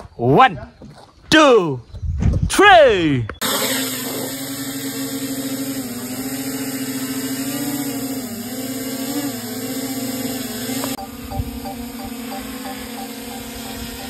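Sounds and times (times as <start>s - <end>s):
drone propellers whining: 3.3s - 14.0s.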